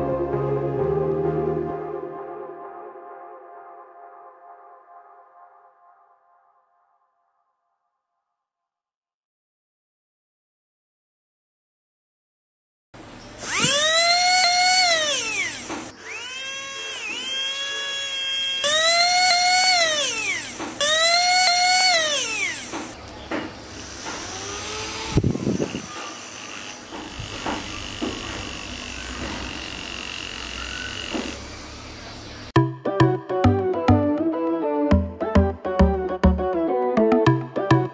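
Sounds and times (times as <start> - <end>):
small electric motor whining: 13.4 - 23.0, 23.6 - 32.1.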